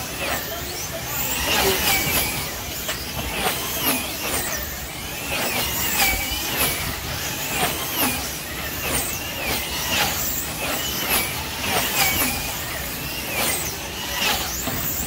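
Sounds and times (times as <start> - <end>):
slot car motors whining: 0.0 - 15.0.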